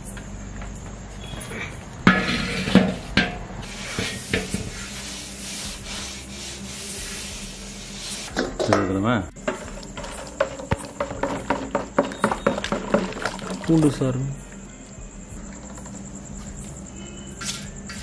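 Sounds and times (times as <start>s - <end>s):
iron pan knocking and clanking: 2.0s - 4.9s, 8.3s - 13.4s
cloth rubbing inside pan: 2.1s - 8.5s.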